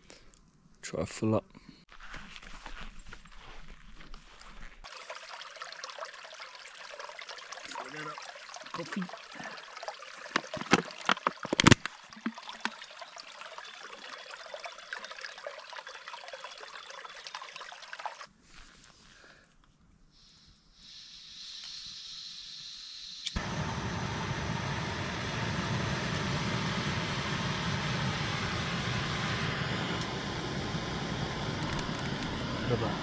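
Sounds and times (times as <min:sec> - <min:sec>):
bottle being filled with water: 0:04.8 - 0:18.3
creek trickling: 0:04.8 - 0:18.3.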